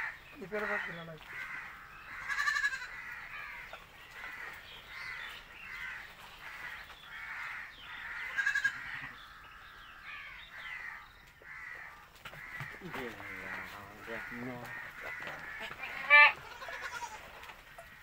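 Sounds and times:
goats bleating: 0.6 - 3.2, 8.2 - 9.1, 12.7 - 17.4.

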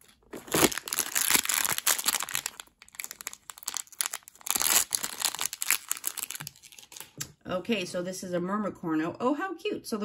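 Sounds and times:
wrapper bag crinkling: 0.0 - 7.2.

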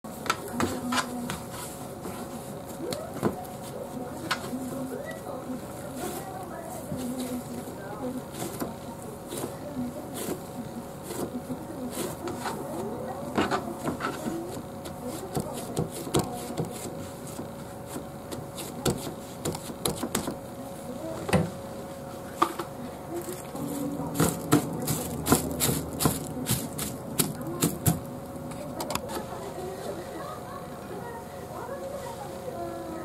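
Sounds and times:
hands patting dough: 5.9 - 20.4, 23.3 - 28.8.

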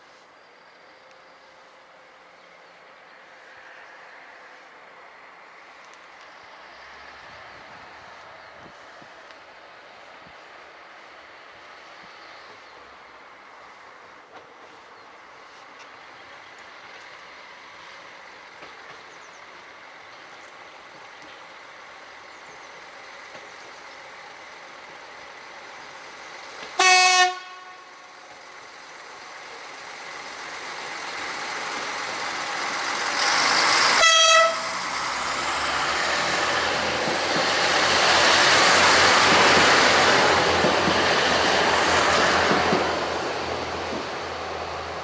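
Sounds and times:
diesel railcar passing: 0.0 - 45.0
train horn blasts: 26.8 - 28.1, 34.0 - 34.8.

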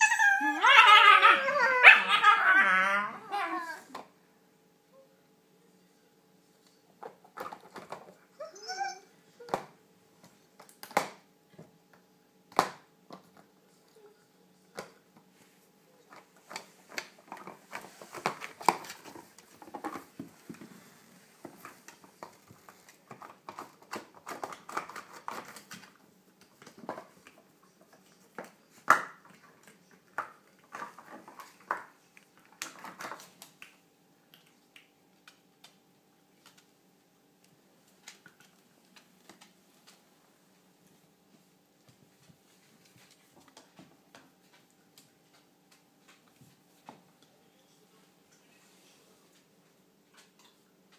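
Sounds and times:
dog claws on wooden floor: 16.1 - 36.7.

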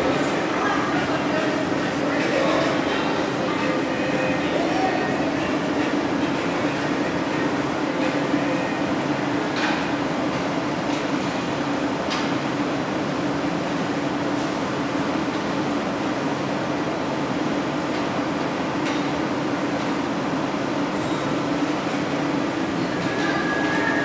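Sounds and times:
fans and exhaust hoods: 0.0 - 24.0.

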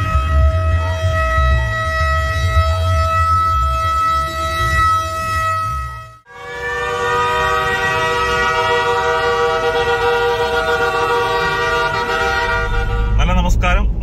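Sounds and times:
low rumble: 0.0 - 9.0
long horn blast: 0.0 - 13.6.

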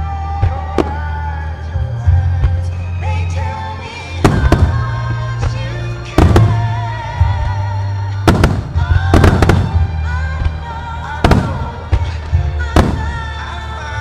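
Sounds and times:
music playing: 0.0 - 14.0
fireworks bursting: 4.2 - 13.8.

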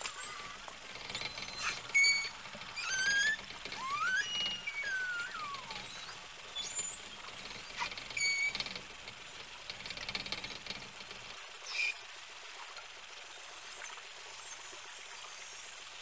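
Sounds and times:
rapid buzzing pulsed calls: 0.0 - 9.2
whale clicks: 0.0 - 11.0
whale squeal: 0.1 - 8.6, 11.6 - 12.0
whale whistles: 0.2 - 8.5.

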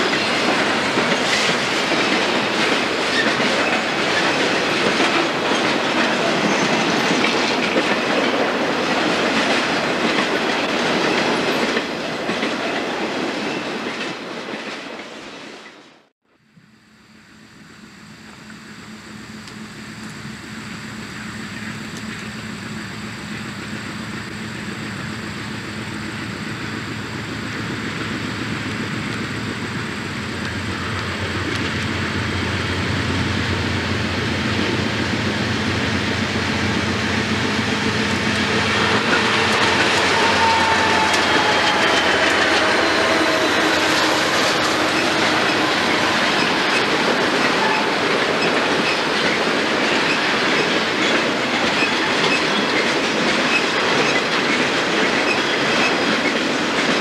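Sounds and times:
distant diesel locomotive rumble: 0.0 - 13.6, 16.4 - 57.0
train wheels clacking over rail joints: 0.0 - 14.9, 27.4 - 57.0.

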